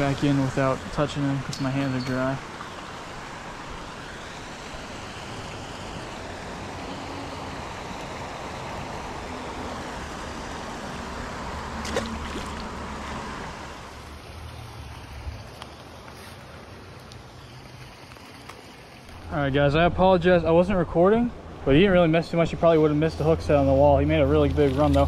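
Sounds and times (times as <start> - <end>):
water rushing into pond: 0.0 - 19.4.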